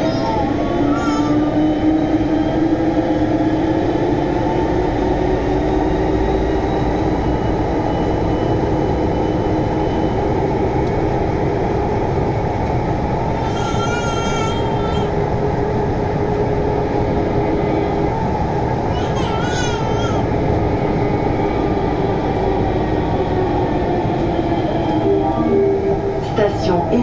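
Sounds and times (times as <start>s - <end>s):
train rumbling through tunnel: 0.0s - 27.0s
high wavering tone: 24.8s - 26.2s.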